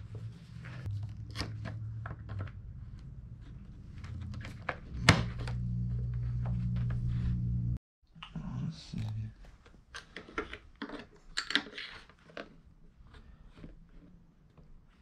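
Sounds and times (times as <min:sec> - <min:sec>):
steady low hum: 0:02.8 - 0:07.8.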